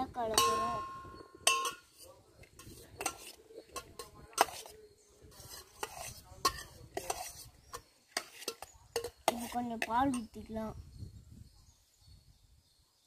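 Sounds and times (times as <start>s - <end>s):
spoon clinking against metal pot: 0.2s - 4.8s, 5.4s - 10.4s.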